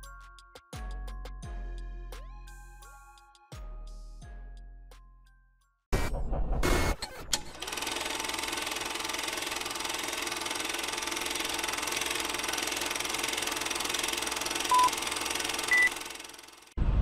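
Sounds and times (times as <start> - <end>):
short beeps: 14.7 - 15.0, 15.7 - 16.0.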